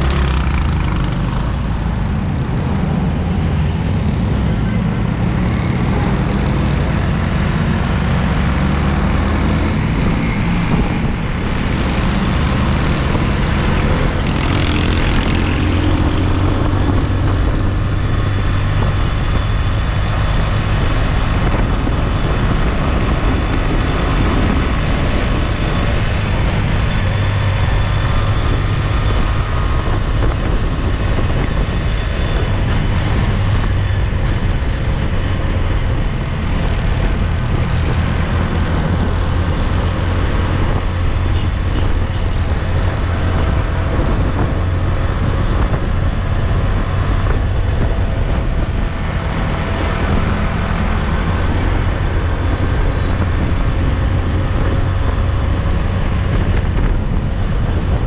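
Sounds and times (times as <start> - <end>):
busy road traffic rumble: 0.0 - 58.0.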